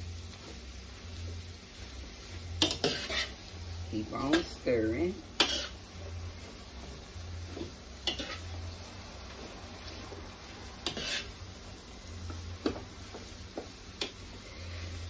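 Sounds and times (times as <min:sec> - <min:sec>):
food sizzling in a frying pan: 0:00.0 - 0:15.0
utensil scraping a pan: 0:02.6 - 0:03.4, 0:05.4 - 0:06.5, 0:07.5 - 0:08.6, 0:10.8 - 0:11.4.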